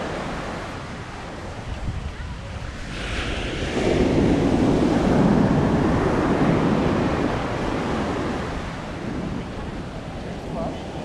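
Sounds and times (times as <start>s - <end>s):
surf washing up sand: 0.0s - 11.0s
ocean wave breaking: 2.6s - 11.0s.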